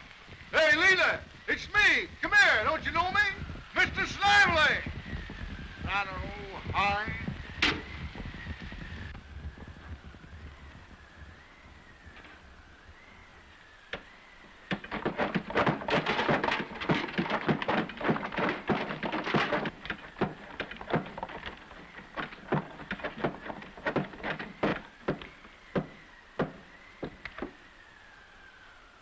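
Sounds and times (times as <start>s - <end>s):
hand water pump clanking: 14.7s - 27.2s.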